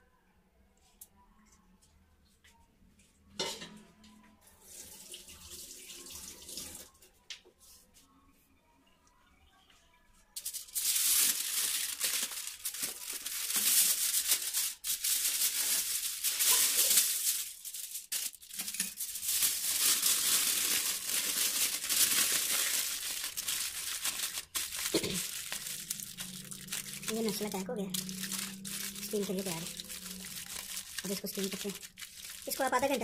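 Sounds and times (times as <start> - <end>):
aluminium foil crinkling: 10.4 - 33.0.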